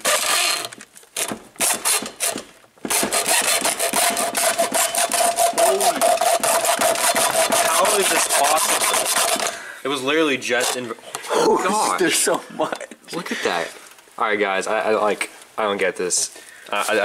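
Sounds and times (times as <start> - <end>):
hacksaw cutting metal can: 0.0 - 9.6.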